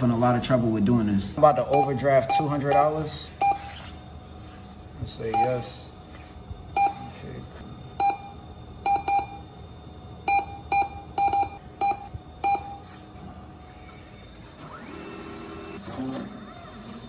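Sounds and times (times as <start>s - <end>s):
short keypad beeps: 8.0s - 9.5s, 10.3s - 12.8s
cash dispenser whirring: 13.2s - 17.0s.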